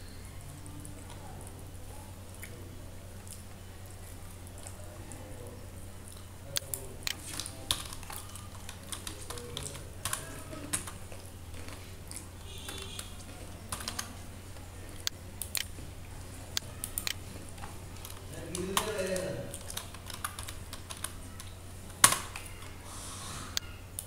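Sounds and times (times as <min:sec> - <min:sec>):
steady low hum: 0:00.0 - 0:24.0
keyboard key clicks: 0:18.0 - 0:22.7.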